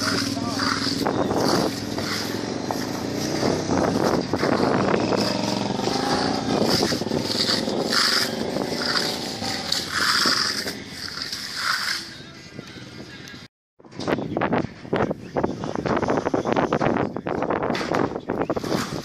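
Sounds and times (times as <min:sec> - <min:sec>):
short scraping strokes: 0:00.0 - 0:12.2.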